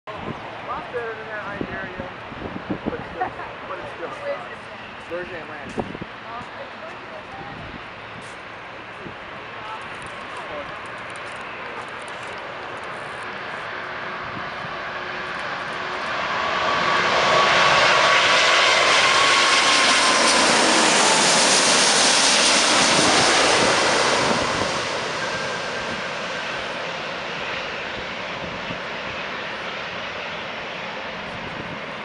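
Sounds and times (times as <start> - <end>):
faint jet whine: 0.1 - 32.0
jet airliner passing overhead: 0.1 - 32.0.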